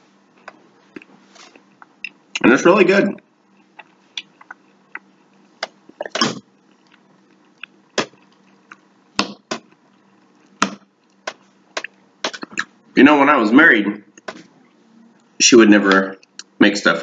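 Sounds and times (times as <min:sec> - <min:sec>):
man chewing food: 0:00.1 - 0:02.4, 0:03.3 - 0:12.8.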